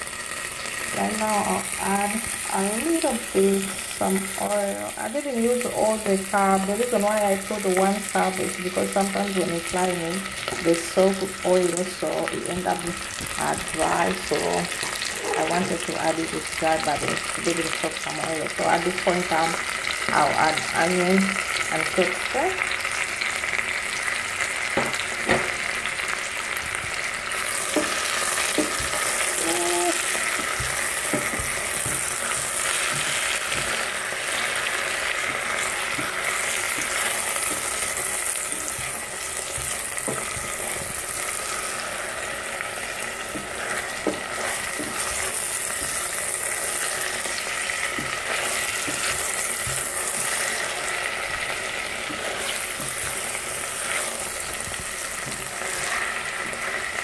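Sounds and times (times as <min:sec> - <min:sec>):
vegetables sizzling in oil: 0:00.0 - 0:57.0.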